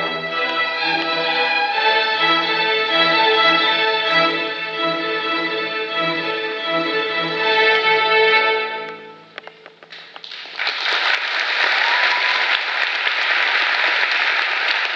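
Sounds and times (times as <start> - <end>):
audience applause: 10.0 - 14.9.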